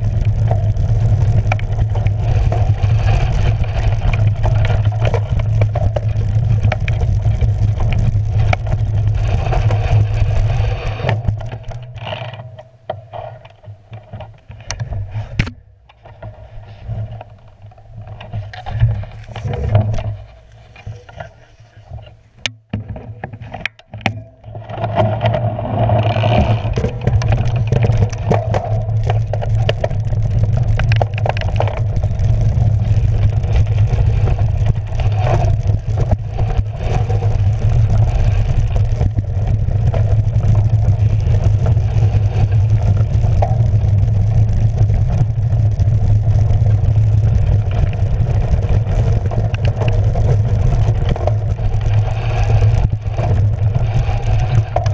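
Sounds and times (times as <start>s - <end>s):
wind on microphone: 0.0s - 12.0s, 24.8s - 54.9s
bike tyres rumbling and rattling: 0.0s - 54.9s.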